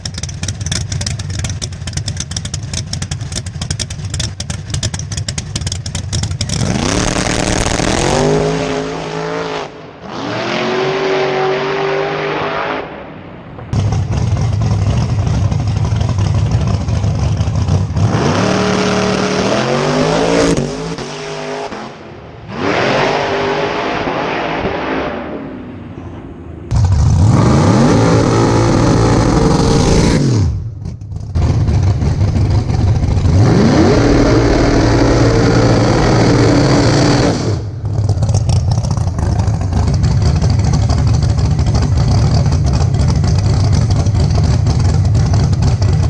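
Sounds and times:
drag car engine idling roughly: 0.0s - 6.6s, 13.8s - 17.9s, 30.9s - 33.4s, 37.8s - 46.0s
car engine revving at full throttle: 6.3s - 46.0s.

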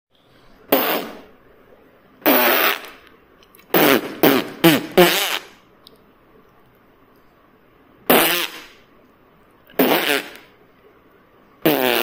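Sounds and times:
farts with wavering pitch: 2.2s - 2.9s, 9.8s - 10.4s, 11.6s - 12.0s.

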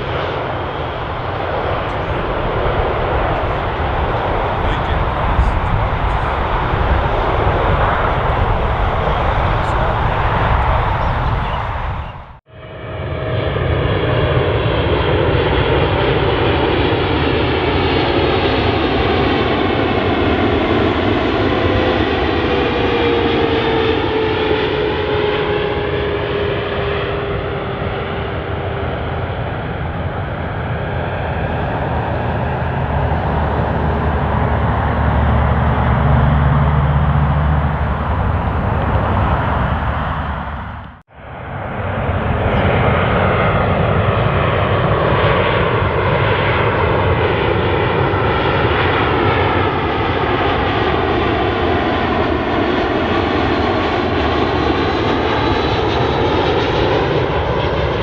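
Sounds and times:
jet engine roar with whine: 0.0s - 58.0s
deep rumble of touchdown: 1.0s - 12.4s.

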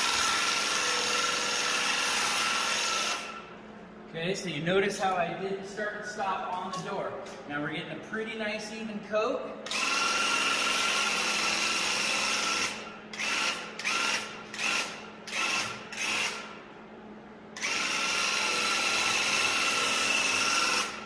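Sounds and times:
paint sprayer pump motor buzzing: 0.0s - 3.4s, 17.6s - 21.0s.

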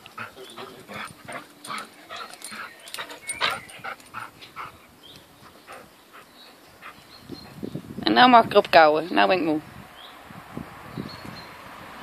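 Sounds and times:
dog panting: 0.0s - 7.6s.

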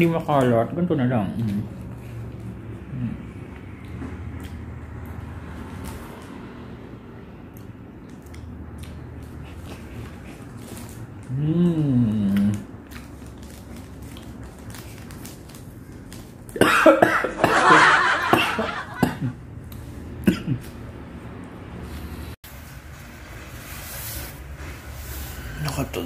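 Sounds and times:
person humming: 11.3s - 12.6s
person coughing and sputtering: 16.6s - 19.4s, 20.2s - 20.8s.

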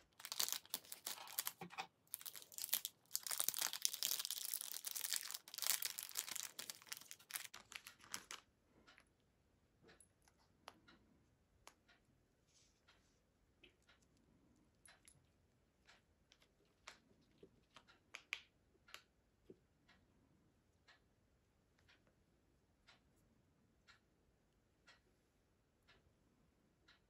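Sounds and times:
plastic packaging crinkling and tearing: 0.0s - 8.5s.

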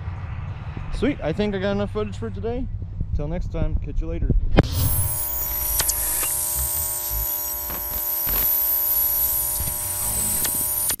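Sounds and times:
low thumps: 0.0s - 5.2s
electric buzz: 4.6s - 11.0s
sharp clicks: 4.6s - 11.0s.

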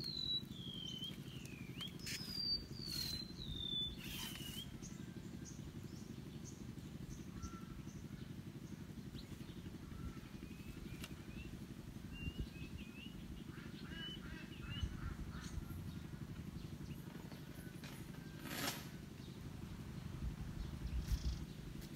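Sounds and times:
birds whistling downward notes: 0.0s - 6.6s, 9.2s - 18.8s, 20.6s - 21.7s
steady low hum: 0.0s - 21.9s.

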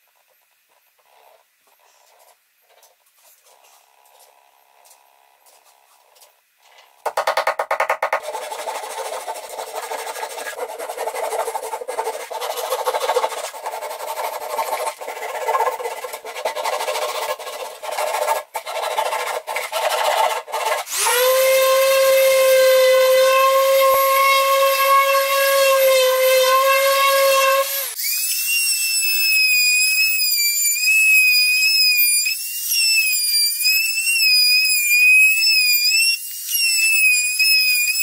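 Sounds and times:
handsaw cutting wood: 8.2s - 28.1s.

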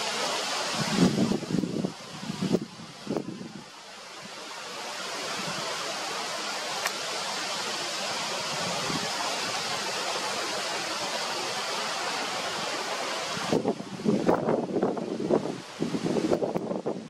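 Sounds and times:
wind rushing: 0.0s - 17.0s
small click: 6.8s - 7.0s.

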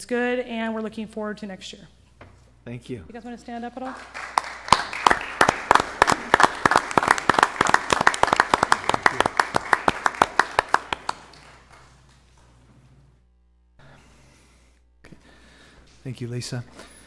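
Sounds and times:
audience applauding: 3.9s - 12.1s.

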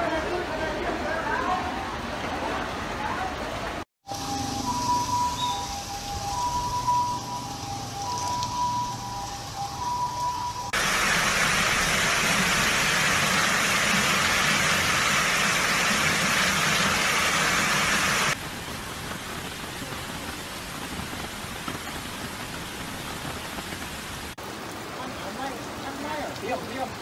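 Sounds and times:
water flowing over flooded ground: 0.0s - 27.0s
two-tone siren: 4.0s - 10.8s
water pouring down stone steps: 4.8s - 24.4s.

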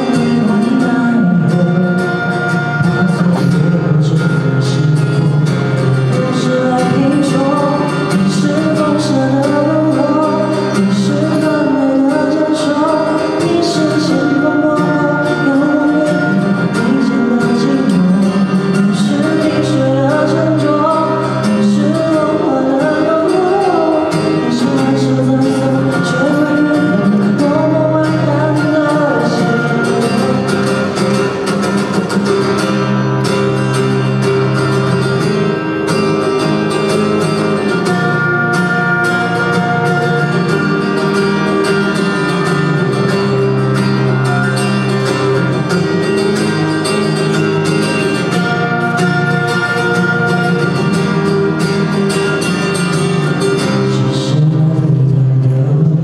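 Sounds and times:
man singing into microphone: 0.0s - 31.3s, 53.3s - 56.0s
acoustic guitar strumming: 0.0s - 56.0s.

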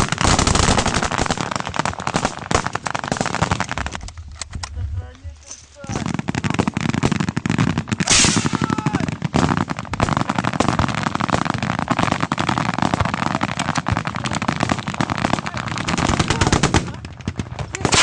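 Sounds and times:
automatic weapons firing: 5.9s - 18.0s.

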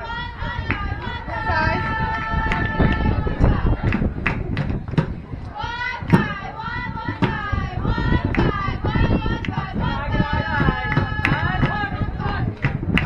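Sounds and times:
girls chanting a cheer: 0.0s - 3.9s
sharp claps: 3.8s - 5.2s, 10.9s - 11.8s, 12.6s - 13.0s.

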